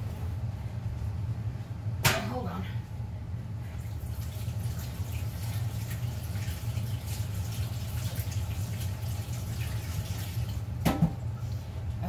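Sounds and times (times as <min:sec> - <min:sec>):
tap water running: 0:03.7 - 0:12.0.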